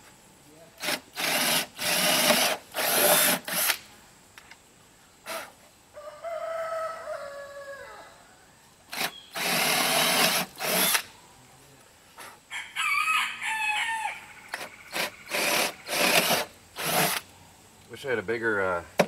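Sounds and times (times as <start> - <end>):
power drill boring into wood: 0.8 - 3.8, 8.9 - 11.0, 14.6 - 17.2
rooster crowing: 5.9 - 8.6, 12.5 - 14.8.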